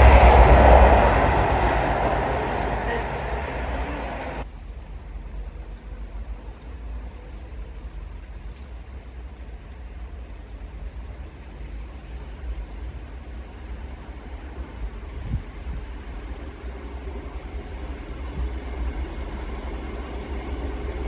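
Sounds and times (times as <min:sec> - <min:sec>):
wind buffeting microphone: 0:00.0 - 0:04.4.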